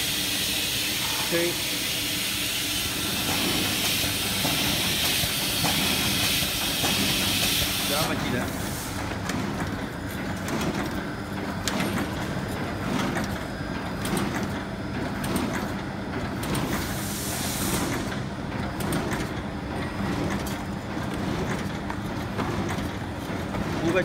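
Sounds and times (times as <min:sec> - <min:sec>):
machine clattering with sharp clicks: 0:03.0 - 0:24.0
hissing air burst: 0:16.8 - 0:18.0.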